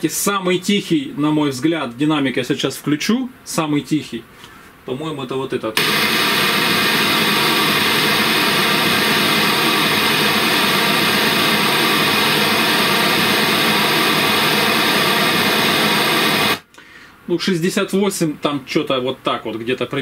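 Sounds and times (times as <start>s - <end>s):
speaker playing pink noise: 5.8s - 16.7s.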